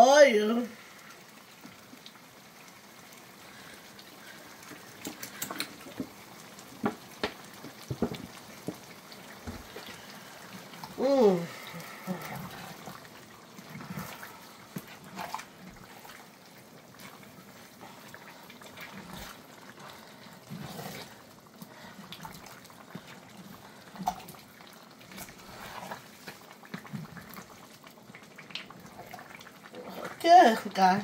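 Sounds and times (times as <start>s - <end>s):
wet squelching and sloshing: 7.6s - 30.6s.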